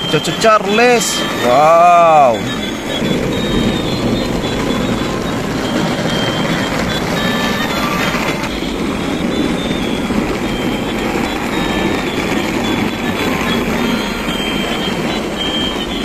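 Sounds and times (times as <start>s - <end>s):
faint short high tones: 0.0s - 16.0s
toy train motors whirring: 0.0s - 16.0s.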